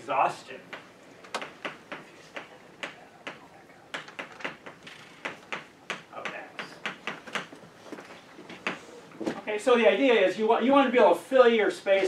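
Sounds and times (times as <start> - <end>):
chalk tapping on blackboard: 0.7 - 7.6.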